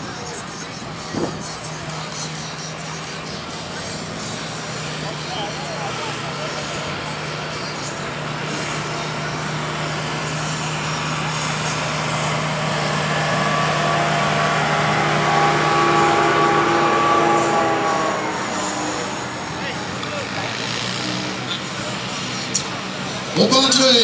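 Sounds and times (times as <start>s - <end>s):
tractor engine under load: 0.0s - 24.0s.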